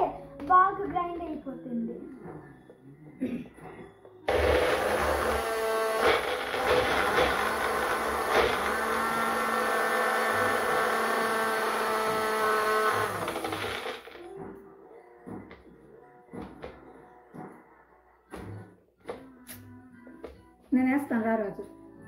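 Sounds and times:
blender motor whine: 4.3s - 14.2s.

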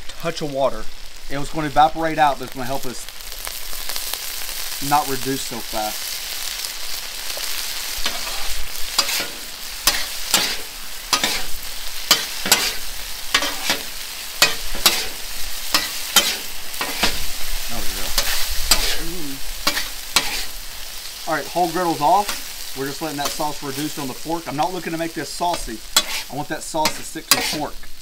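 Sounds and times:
food sizzling on a griddle: 0.0s - 28.0s
metal spatulas scraping and tapping: 8.0s - 8.4s, 9.0s - 11.4s, 12.1s - 12.8s, 13.4s - 13.8s, 14.4s - 15.1s, 15.8s - 17.2s, 25.5s - 26.3s, 26.9s - 27.7s.

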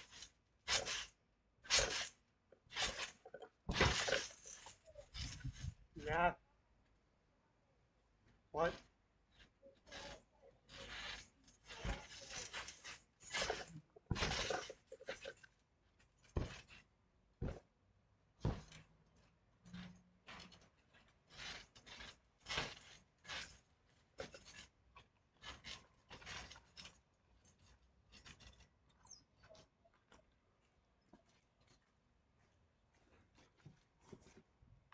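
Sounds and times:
thumps on trampoline mat: 13.4s - 14.7s.

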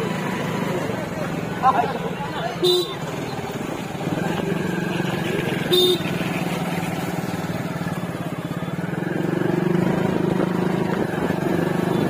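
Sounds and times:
motorcycle engine running: 0.0s - 12.0s
horn beep: 2.6s - 3.1s, 5.7s - 6.2s.

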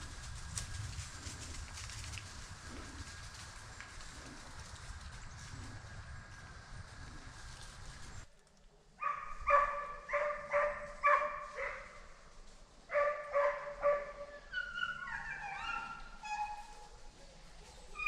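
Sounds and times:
hounds baying: 9.0s - 12.0s, 12.9s - 18.0s
hounds barking: 9.0s - 12.1s, 12.9s - 18.0s.

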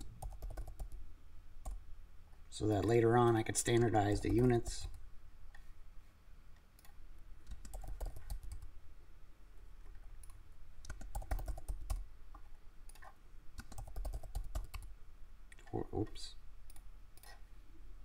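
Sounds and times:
computer keyboard typing: 0.0s - 1.0s, 6.8s - 8.7s, 10.2s - 12.1s, 12.9s - 14.9s.

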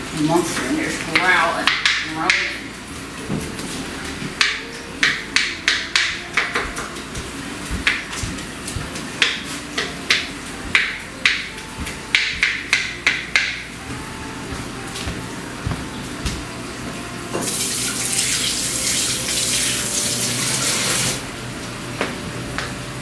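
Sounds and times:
knife chopping on cutting board: 4.4s - 16.4s.

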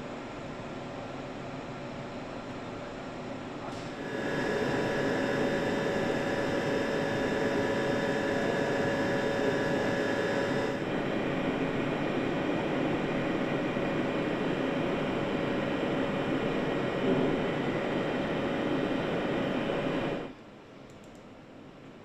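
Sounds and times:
car engine running with whine: 4.0s - 11.0s.

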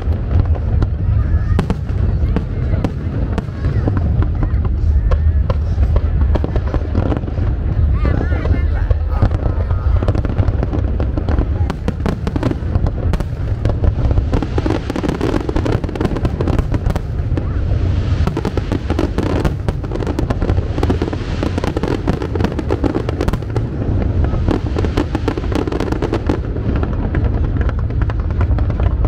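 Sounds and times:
deep low rumble: 0.0s - 29.0s
fireworks bangs and crackles: 0.0s - 29.0s.

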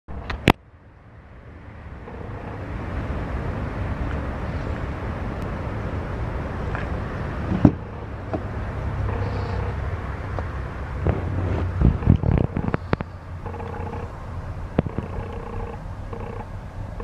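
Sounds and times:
pickup truck engine idling: 9.0s - 9.9s, 11.9s - 17.0s.

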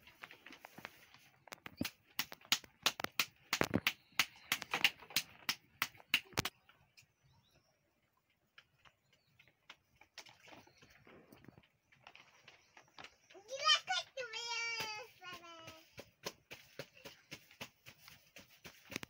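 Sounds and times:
dough slapped between palms: 1.6s - 6.6s, 14.7s - 19.0s.

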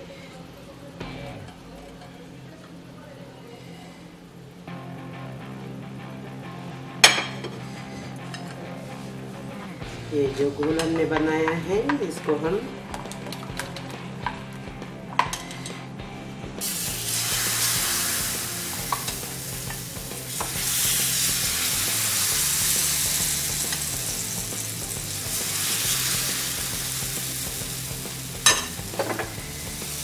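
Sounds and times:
batter sizzling on hot pan: 16.6s - 30.0s.

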